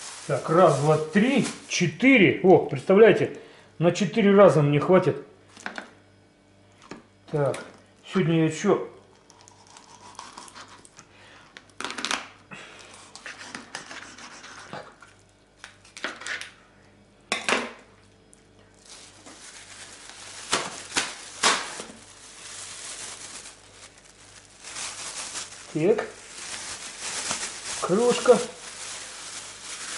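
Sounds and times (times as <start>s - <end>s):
plastic bag crinkling: 0.0s - 2.1s, 18.7s - 29.9s.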